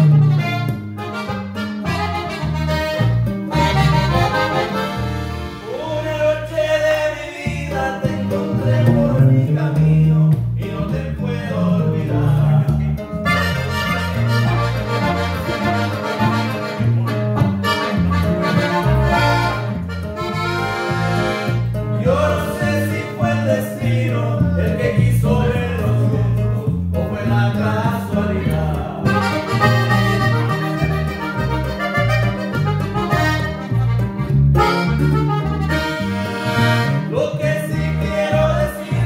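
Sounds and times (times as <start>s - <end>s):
button accordion playing: 0.0s - 6.2s, 13.2s - 23.2s, 29.1s - 38.2s
heavy bass line: 0.0s - 39.0s
strummed guitar: 0.0s - 39.0s.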